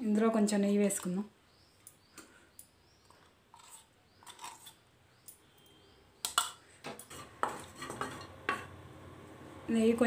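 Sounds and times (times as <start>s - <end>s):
spoon scraping and tapping: 3.1s - 8.7s.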